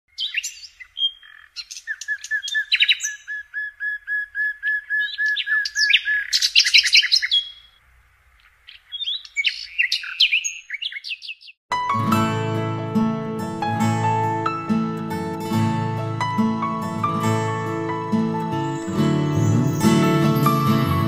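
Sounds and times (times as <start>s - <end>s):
songbirds singing and calling: 0.1s - 11.6s.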